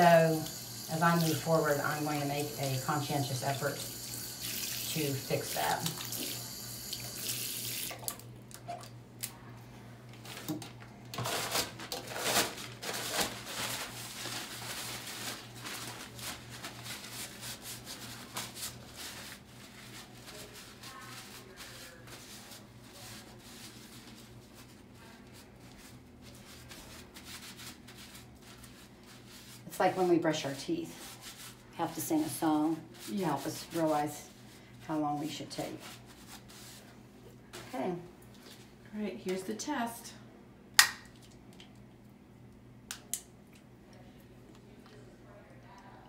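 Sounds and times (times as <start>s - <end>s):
soapy hands rubbing: 0.0s - 8.1s, 13.3s - 37.0s
tap water splashing: 5.8s - 8.2s.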